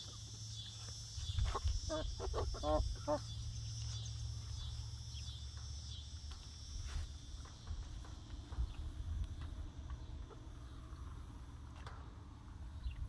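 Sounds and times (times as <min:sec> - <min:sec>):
insect chirring: 0:00.0 - 0:08.9
low outdoor rumble: 0:00.0 - 0:13.0
hens calling softly: 0:01.4 - 0:04.0.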